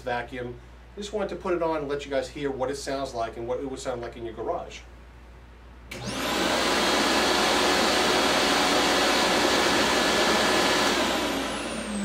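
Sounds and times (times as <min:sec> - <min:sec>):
vacuum motor whining: 0:05.9 - 0:12.0.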